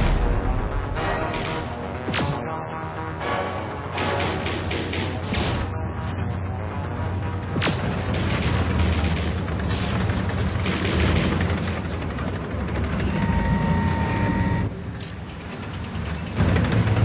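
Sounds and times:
low rumble of war machines: 0.0 - 17.0
steady whine: 5.6 - 15.1.

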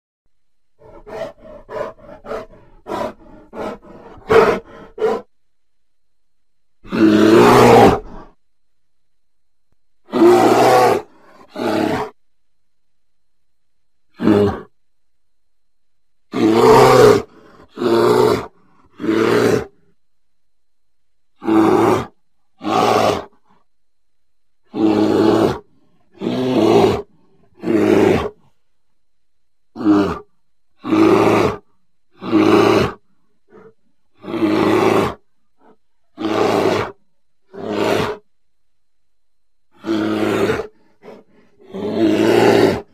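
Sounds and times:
bear roaring: 0.8 - 5.3, 6.8 - 8.4, 10.0 - 12.2, 14.1 - 14.7, 16.3 - 19.8, 21.4 - 23.5, 24.6 - 28.6, 29.7 - 38.3, 39.7 - 42.9.

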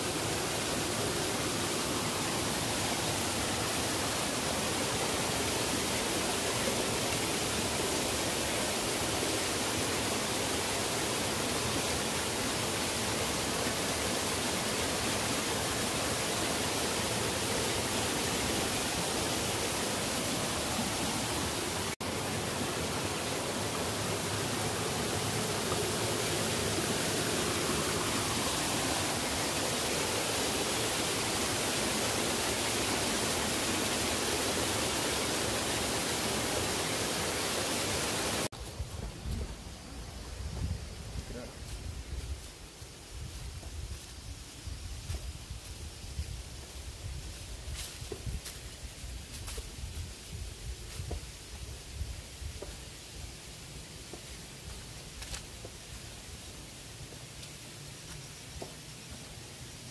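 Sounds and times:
waterfall rushing: 0.0 - 38.5.

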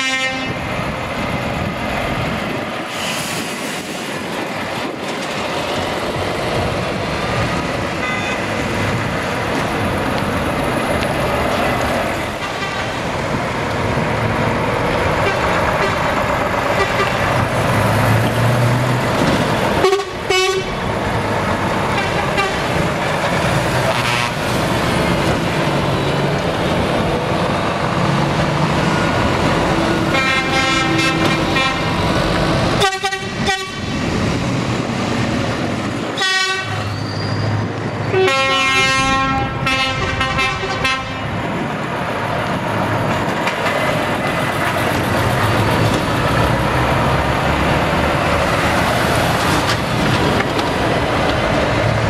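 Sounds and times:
multi-tone truck horns: 0.0 - 0.7, 8.0 - 8.6, 12.4 - 13.0, 15.2 - 17.4, 19.7 - 20.8, 21.8 - 22.8, 23.8 - 24.6, 30.0 - 32.1, 32.7 - 33.9, 36.1 - 37.0, 38.1 - 41.4
diesel truck engines: 0.0 - 52.0.

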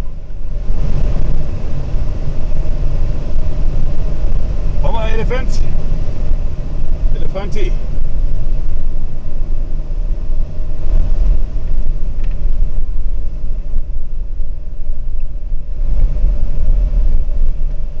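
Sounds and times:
vehicle engine and tyres rumbling: 0.0 - 18.0
wind buffeting microphone: 0.0 - 18.0.

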